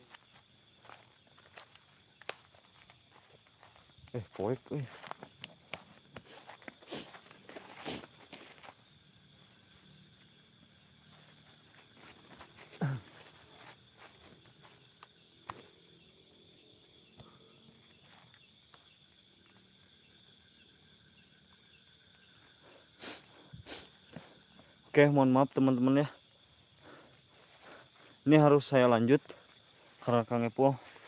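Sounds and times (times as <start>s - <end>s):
night insects chirring: 0.0s - 31.0s.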